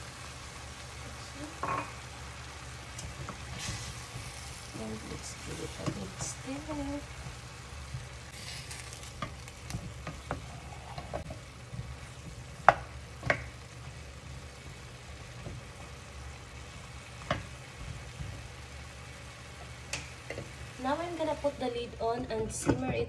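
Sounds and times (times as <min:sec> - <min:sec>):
light sizzle: 0:00.0 - 0:23.0
sharp knocks on pan: 0:12.6 - 0:13.5.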